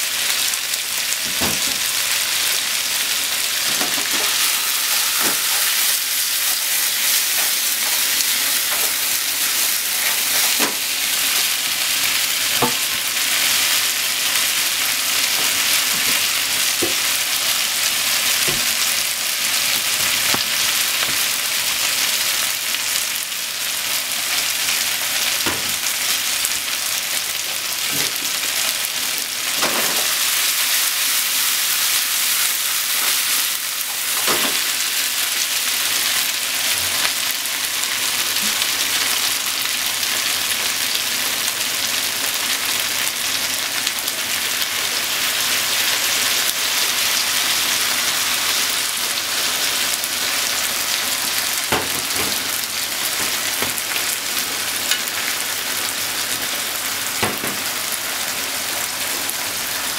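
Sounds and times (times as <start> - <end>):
food sizzling in a frying pan: 0.0 - 59.9
pan knocking: 3.7 - 6.6.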